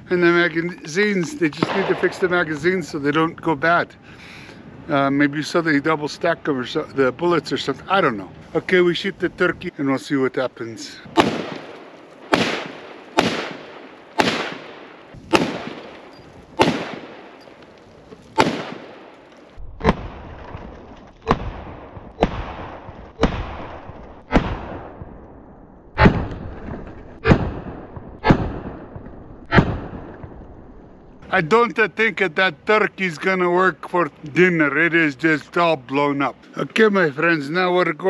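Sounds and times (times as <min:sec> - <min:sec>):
rifle shots with echo: 0:01.5 - 0:02.5, 0:11.1 - 0:17.5, 0:18.3 - 0:20.5, 0:21.3 - 0:25.2, 0:27.2 - 0:30.4.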